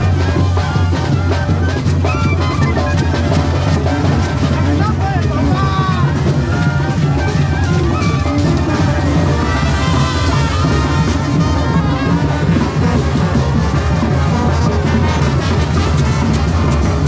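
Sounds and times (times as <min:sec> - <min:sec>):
marching brass band playing: 0:00.0 - 0:17.0.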